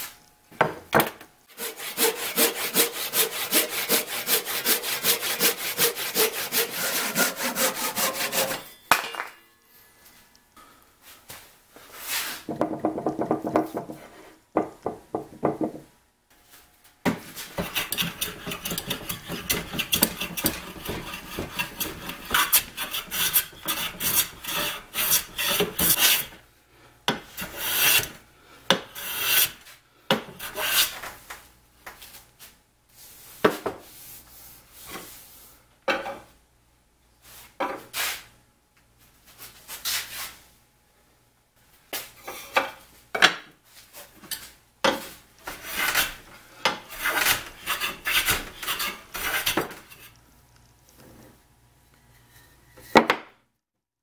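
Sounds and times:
hand plane shaving wood: 0:01.6 - 0:08.6, 0:17.5 - 0:26.3, 0:27.4 - 0:28.2, 0:29.0 - 0:29.6, 0:30.4 - 0:31.0, 0:45.5 - 0:46.2, 0:46.9 - 0:49.7.

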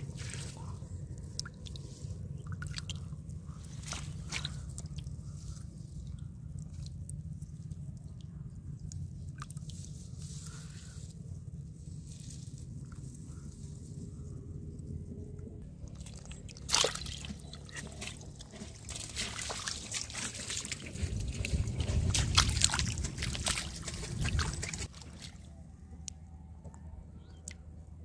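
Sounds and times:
hand squelching in muddy water: 0:00.0 - 0:07.2, 0:15.8 - 0:25.6
steady low rumble: 0:00.0 - 0:28.0.

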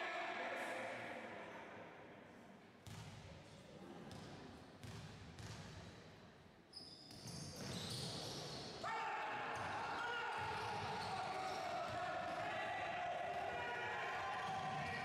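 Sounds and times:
basketball bouncing on wooden court: 0:04.1 - 0:05.6.

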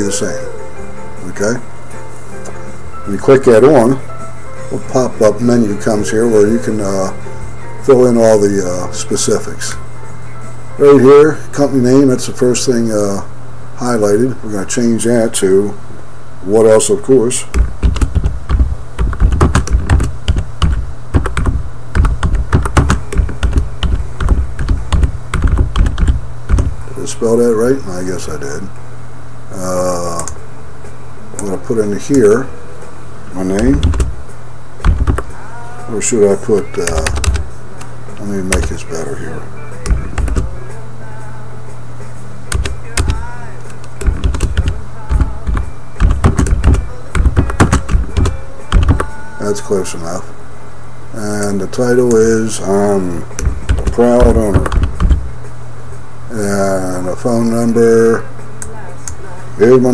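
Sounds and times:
steady low hum: 0:00.0 - 0:59.9
typing on computer keyboard: 0:17.6 - 0:26.7, 0:36.8 - 0:37.4, 0:42.5 - 0:43.2, 0:43.9 - 0:49.1, 0:53.4 - 0:55.2.

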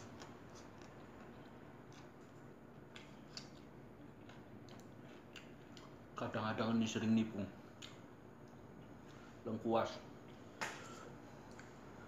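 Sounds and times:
person chewing food: 0:00.0 - 0:06.0, 0:07.8 - 0:09.1
low room hum: 0:00.0 - 0:12.0.

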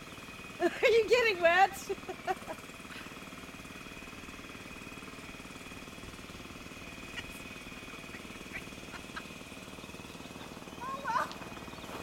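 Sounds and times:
snowblower engine running: 0:00.0 - 0:12.0.

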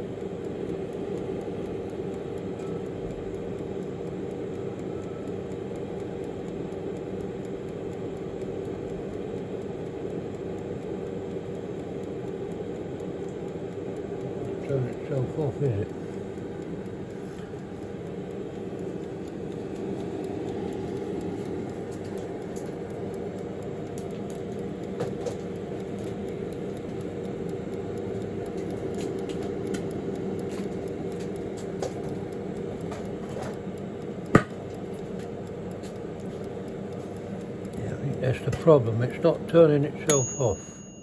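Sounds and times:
air fryer humming: 0:00.0 - 0:41.0
sharp click: 0:15.6 - 0:38.8.

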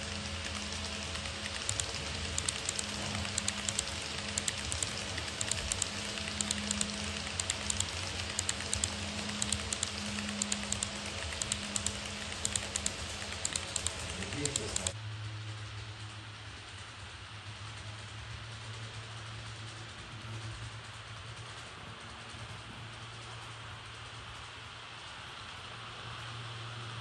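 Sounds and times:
model train wheels clicking: 0:00.0 - 0:15.0
model train hum: 0:00.0 - 0:27.0.

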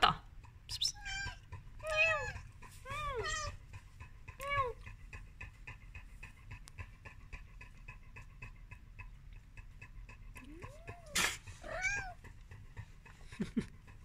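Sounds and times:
kitten meowing: 0:00.7 - 0:03.6, 0:10.8 - 0:12.2.

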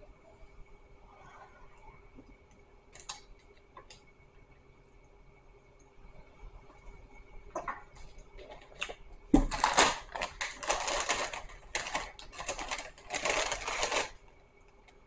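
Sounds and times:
paper packaging crinkling: 0:08.0 - 0:14.4.

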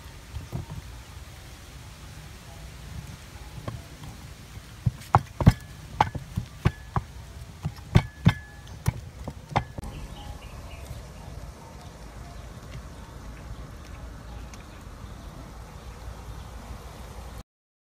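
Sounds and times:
pestle knocking in wooden mortar: 0:04.8 - 0:09.8.

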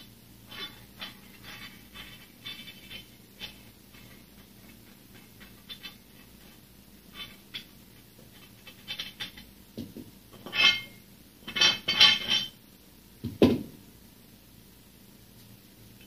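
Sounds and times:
metal weight plates clinking: 0:10.4 - 0:12.6
weight thudding on floor: 0:13.2 - 0:13.8.

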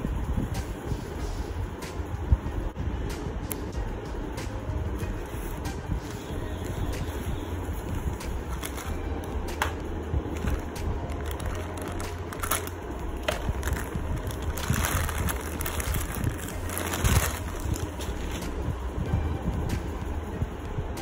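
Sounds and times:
steady low hum: 0:00.0 - 0:21.0
plastic bag crinkling: 0:08.5 - 0:09.0, 0:10.4 - 0:18.5.

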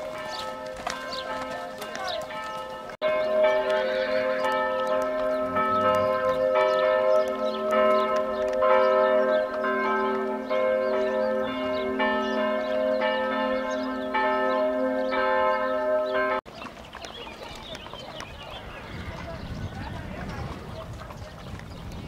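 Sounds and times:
church bells ringing: 0:00.0 - 0:16.5.

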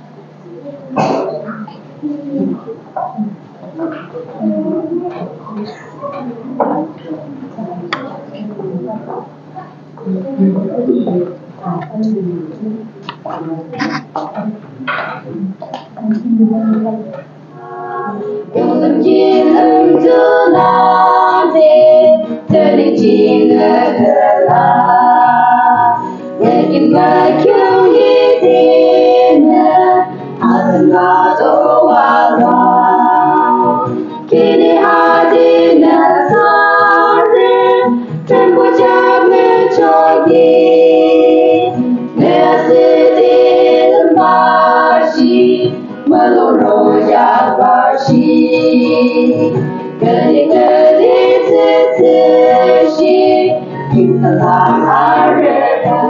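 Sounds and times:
women singing a hymn: 0:16.7 - 0:56.0.

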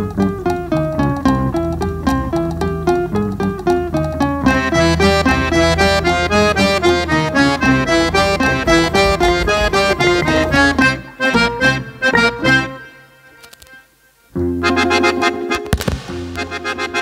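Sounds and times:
drums: 0:00.0 - 0:12.5
accordion: 0:00.0 - 0:17.0
guitars: 0:00.0 - 0:17.0
steady bass: 0:04.2 - 0:11.6.

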